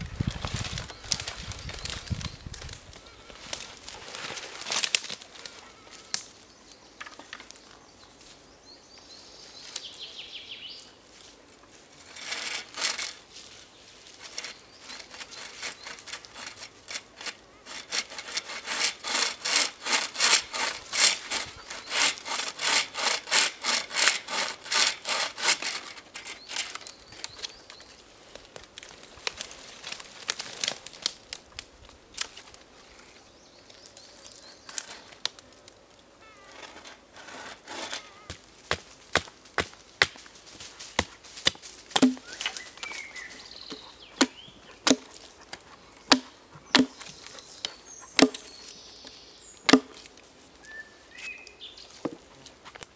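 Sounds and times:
saw cutting through branch: 12.0 - 13.2, 14.2 - 27.0, 36.6 - 38.1, 41.0 - 48.7.

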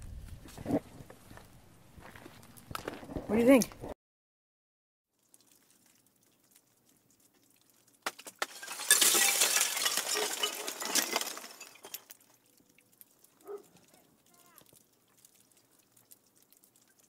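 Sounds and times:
ice crystals tinkling: 8.4 - 12.3.

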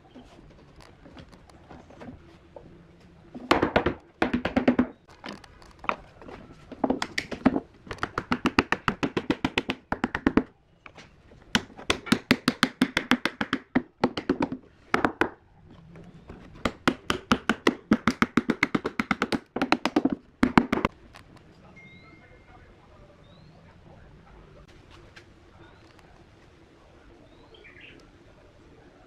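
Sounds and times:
hammer tapping wood strips: 3.3 - 15.4, 16.3 - 21.0.

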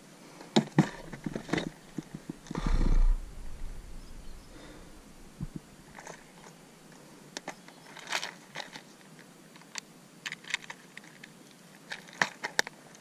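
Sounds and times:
plastic clicks and rattles: 9.6 - 11.3, 11.9 - 12.8.

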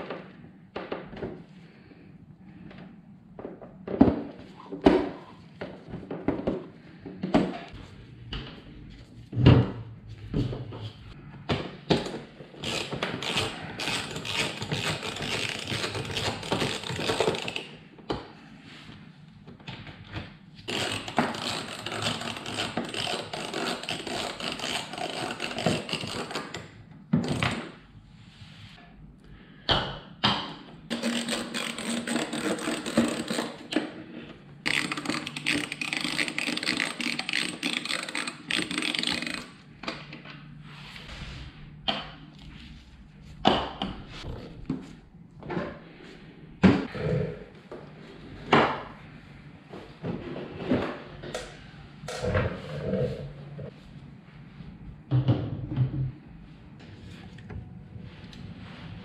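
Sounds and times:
hand ratchet clicking: 34.7 - 39.6.

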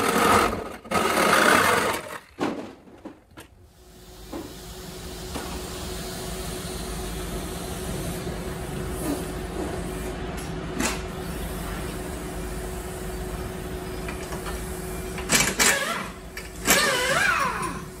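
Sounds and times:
machine humming and hissing: 3.6 - 18.0.

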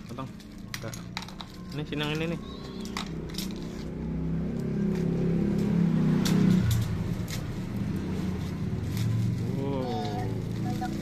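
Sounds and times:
vehicle engine running: 2.2 - 11.0.

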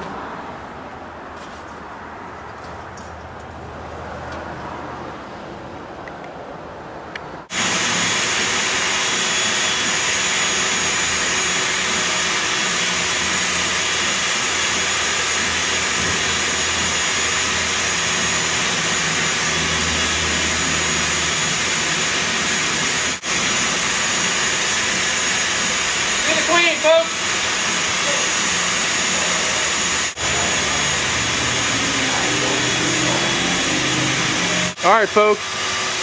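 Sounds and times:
vacuum motor whining: 7.5 - 36.0.

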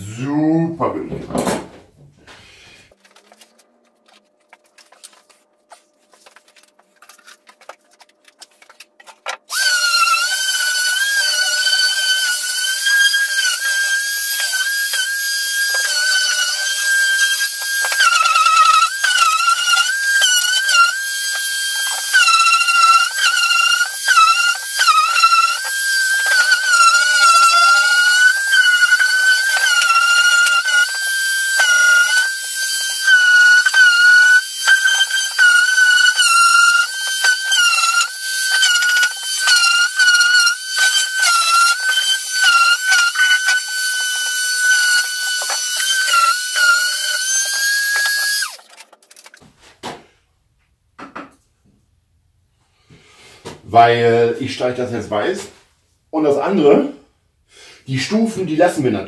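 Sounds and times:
electric sander whining: 9.5 - 48.6.

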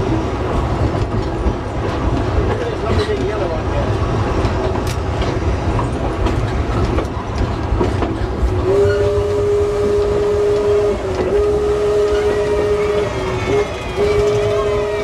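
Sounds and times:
train rumble and wheel clatter: 0.0 - 15.0
steam whistle: 8.6 - 15.0.

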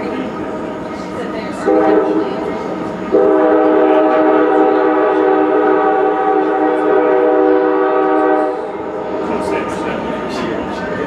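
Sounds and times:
train horn blast: 1.7 - 2.4, 3.1 - 8.7.

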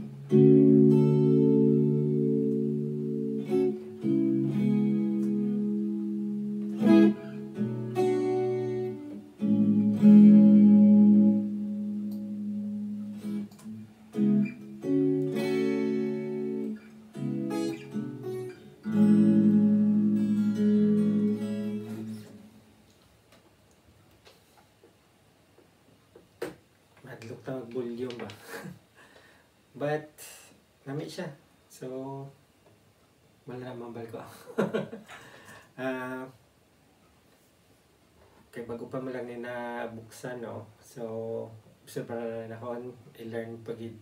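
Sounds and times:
guitar strumming chords: 0.0 - 22.6.

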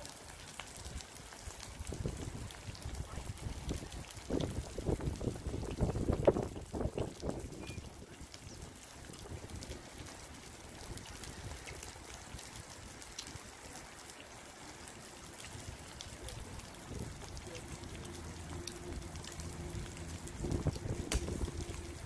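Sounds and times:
wind hiss on microphone: 0.0 - 22.0
distant motor drone: 17.4 - 22.0.

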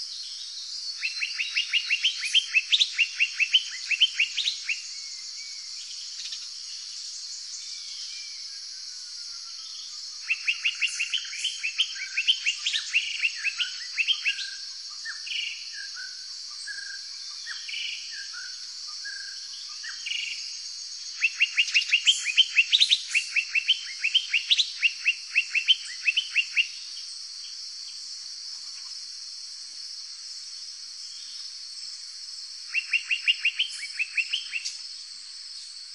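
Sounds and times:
high insect drone: 0.0 - 35.9
varied bird calls: 10.2 - 27.1, 32.7 - 34.9.

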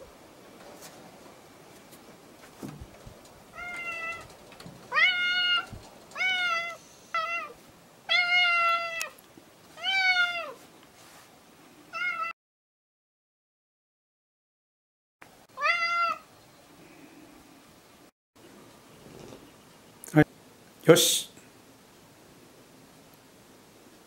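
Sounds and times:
cat meowing: 3.6 - 4.3, 4.9 - 9.2, 9.8 - 10.6, 11.9 - 12.4, 15.6 - 16.3.

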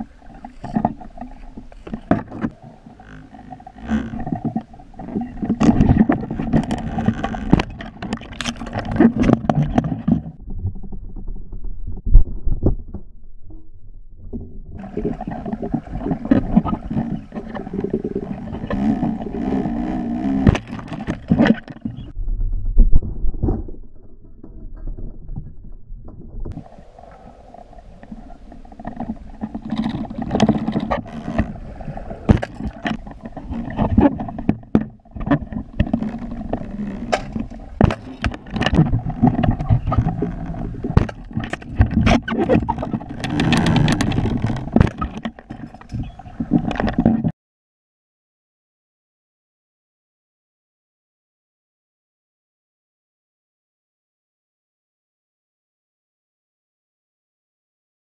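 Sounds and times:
underwater river current rushing: 0.0 - 10.1, 14.8 - 22.2, 26.5 - 47.0
sharp clicks and knocks: 0.4 - 13.1, 18.5 - 22.1, 32.3 - 47.3.

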